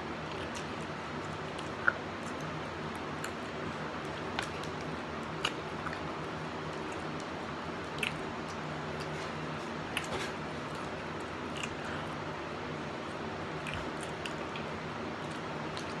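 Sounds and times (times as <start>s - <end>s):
steady low hum: 0.0s - 16.0s
mouth smacks and clicks: 0.3s - 3.4s, 7.9s - 9.2s, 13.6s - 16.0s.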